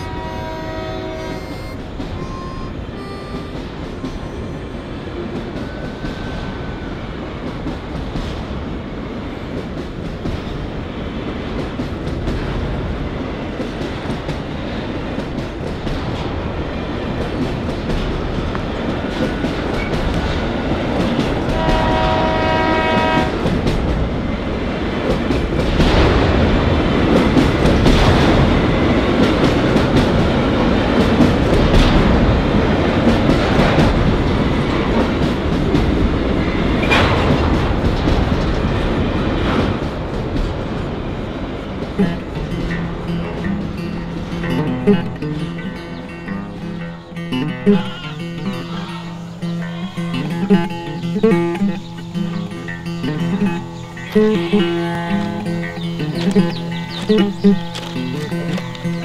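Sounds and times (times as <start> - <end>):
train horn blast: 0.0 - 6.9, 21.2 - 23.6, 45.7 - 59.0
freight train rumble: 0.0 - 59.0
wheels clattering on rails: 0.0 - 59.0.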